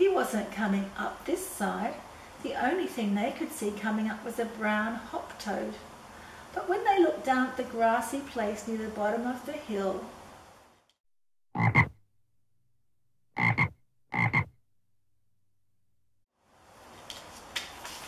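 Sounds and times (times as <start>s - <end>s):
frog croaks: 11.6s - 12.0s, 13.4s - 14.6s.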